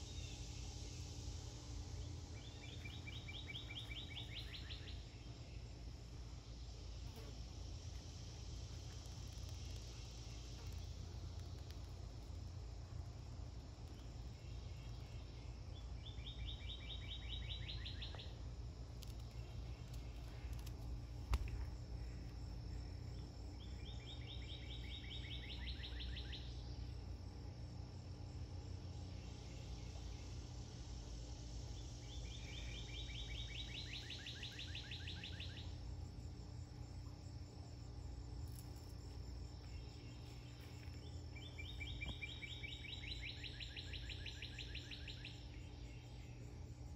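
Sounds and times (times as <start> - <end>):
steady low rumble: 0.0 - 24.1.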